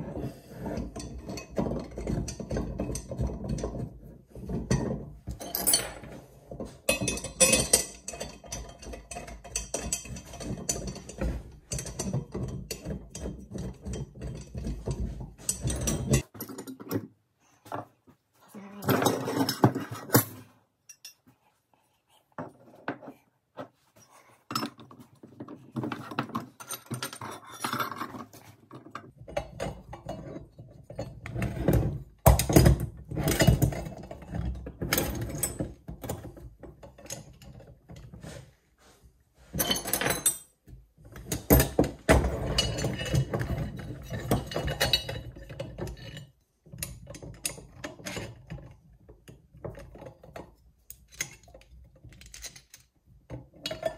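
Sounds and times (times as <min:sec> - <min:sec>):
metal parts clinking and rattling: 0:00.6 - 0:17.0, 0:25.8 - 0:38.1, 0:39.5 - 0:40.5, 0:41.1 - 0:48.8, 0:49.4 - 0:53.0.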